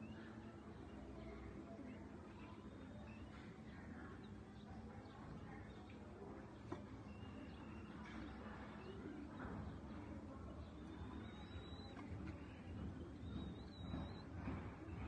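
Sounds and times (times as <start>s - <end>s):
faint cockatiel chirps: 10.6s - 15.0s.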